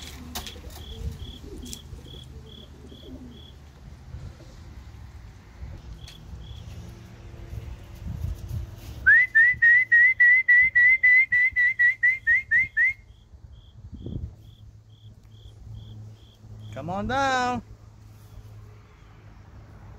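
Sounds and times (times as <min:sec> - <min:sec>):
person whistling short notes: 0:09.0 - 0:13.1.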